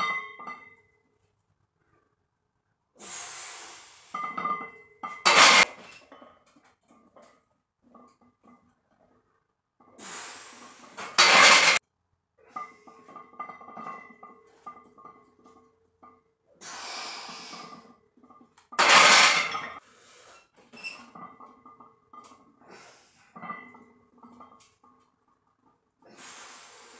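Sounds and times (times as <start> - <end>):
sharp loud exhale: 3.0 - 4.1, 16.6 - 17.7, 26.1 - 26.9.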